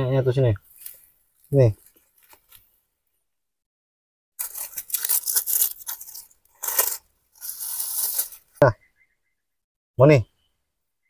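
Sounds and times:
grass and leaves rustling: 0.6s - 2.8s, 4.4s - 8.6s.

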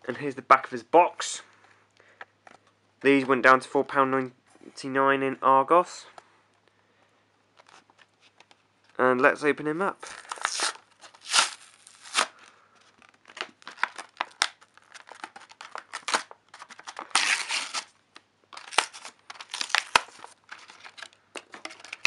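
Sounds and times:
plastic packing crinkling: 10.0s - 22.0s
cardboard tearing: 10.1s - 12.4s, 13.6s - 17.9s, 18.6s - 21.0s.

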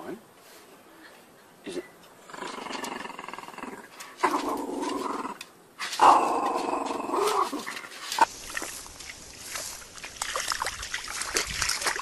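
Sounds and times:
small dog growling: 2.2s - 7.9s.

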